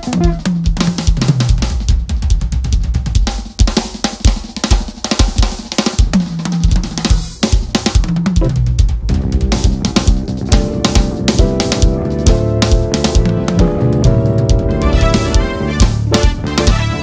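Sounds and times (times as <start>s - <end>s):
drum kit playing: 0.0s - 17.0s
electric bass guitar: 8.4s - 17.0s.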